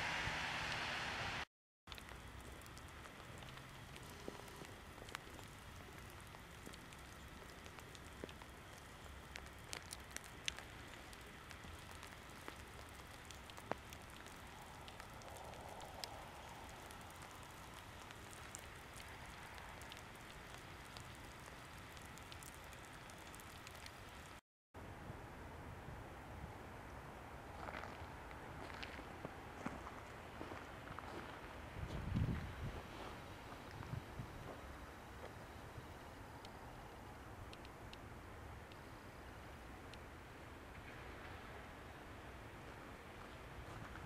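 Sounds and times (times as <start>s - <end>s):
faint steady hiss: 0.0s - 44.0s
soft ticks and patters: 1.9s - 24.4s, 27.5s - 40.1s.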